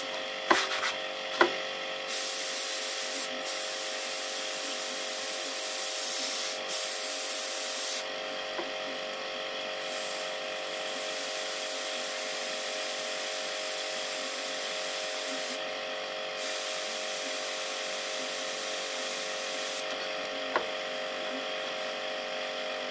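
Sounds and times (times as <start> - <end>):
steady hum: 0.0 - 22.9
airbrush hissing: 2.1 - 8.1, 9.8 - 15.6, 16.4 - 19.9.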